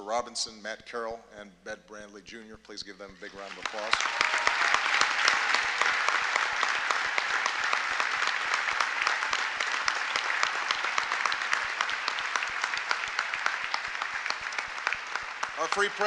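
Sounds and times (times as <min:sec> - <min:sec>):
audience applauding: 0:03.2 - 0:16.0.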